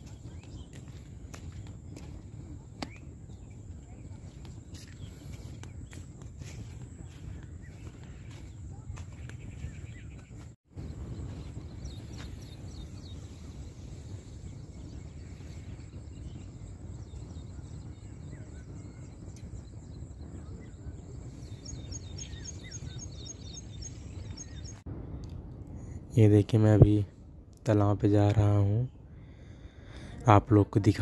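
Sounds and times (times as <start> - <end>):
small birds chirping: 0.0 - 24.8
wind rumble on microphone: 0.0 - 31.0
rapid high bird chirps: 4.7 - 24.8.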